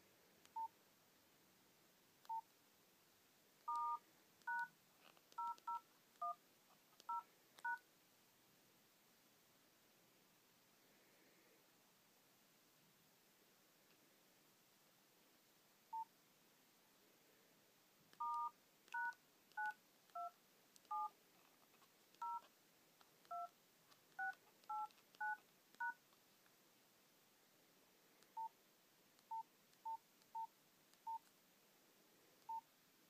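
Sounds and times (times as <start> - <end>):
short keypad beeps: 3.7 - 4.7.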